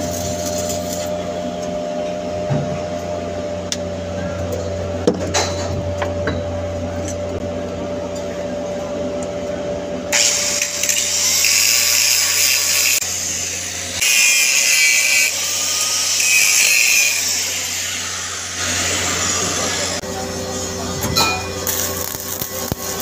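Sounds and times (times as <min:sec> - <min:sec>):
angle grinder grinding metal: 0:10.1 - 0:20.0.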